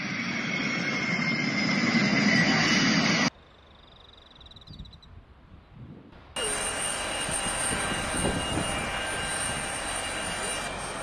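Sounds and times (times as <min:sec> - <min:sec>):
jet engines rushing and whining: 0:00.0 - 0:03.3, 0:06.2 - 0:11.0.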